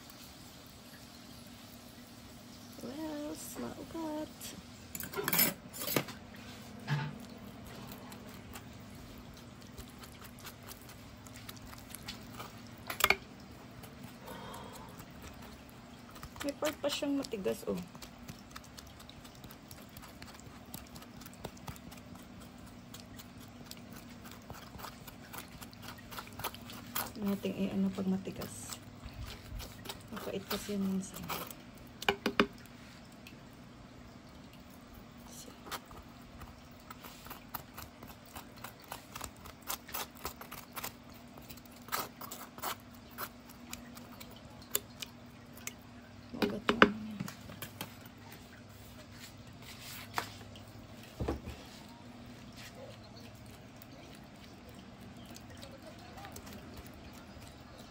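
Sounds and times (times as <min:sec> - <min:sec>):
steady low hum: 0:00.0 - 0:57.9
spoon scraping avocado: 0:05.0 - 0:32.6, 0:35.6 - 0:45.0
spoon tapping jar: 0:32.1 - 0:32.5.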